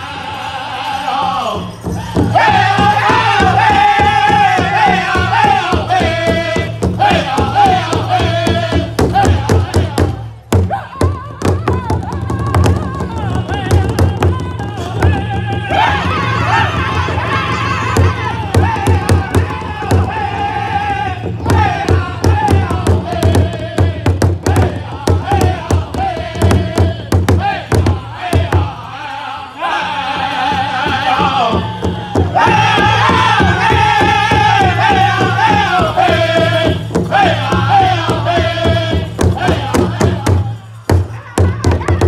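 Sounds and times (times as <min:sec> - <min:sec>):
men singing in high voices: 0:00.0 - 0:42.0
large hide drum beating: 0:01.8 - 0:28.8, 0:30.5 - 0:42.0.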